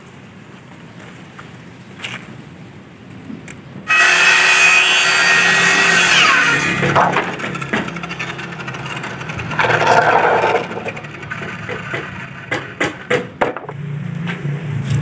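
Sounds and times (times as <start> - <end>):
bamboo poles scraping on concrete: 3.9 - 13.7.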